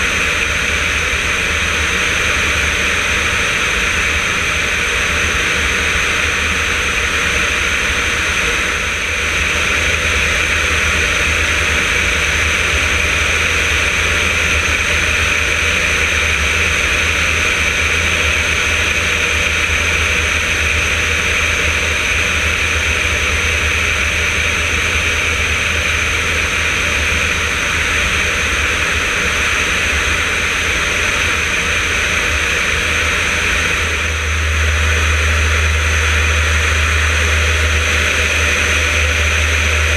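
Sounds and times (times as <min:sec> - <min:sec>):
aircraft engine and propeller drone: 0:00.0 - 0:39.9.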